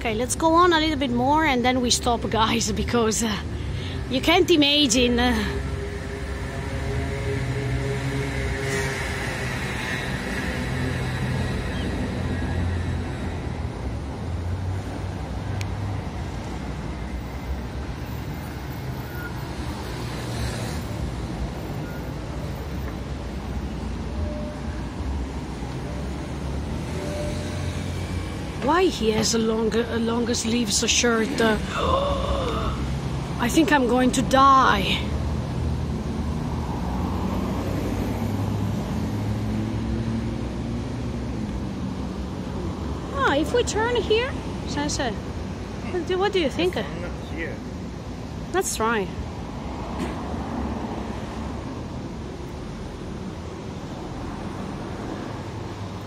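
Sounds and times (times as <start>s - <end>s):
traffic rumble: 0.0s - 56.0s.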